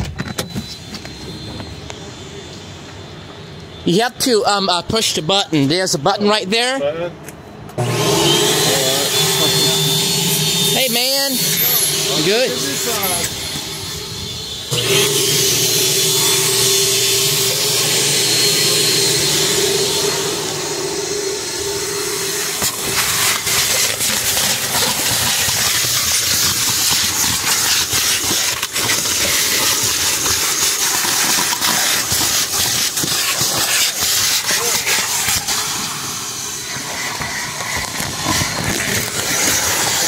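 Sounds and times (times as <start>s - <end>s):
vacuum motor humming: 7.8s - 40.0s
air rushing through hose: 8.7s - 40.0s
vacuum nozzle crackling on floor mat: 22.6s - 35.8s, 36.7s - 40.0s.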